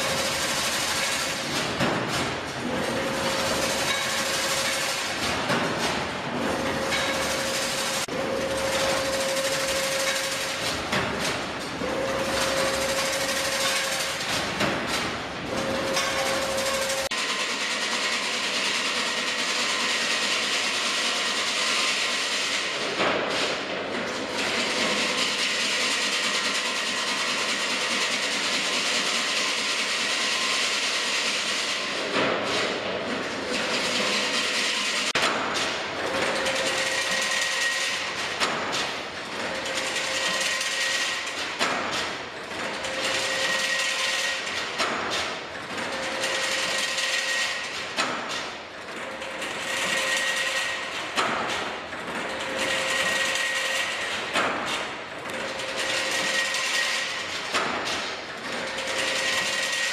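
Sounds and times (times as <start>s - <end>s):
sharp machine knock: 0.0s - 32.8s
machine mechanical clatter: 0.0s - 59.9s.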